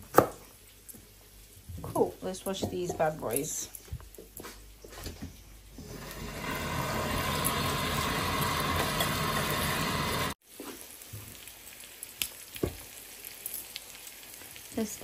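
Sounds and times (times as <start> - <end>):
steaks sizzling in a pan: 5.8 - 15.0.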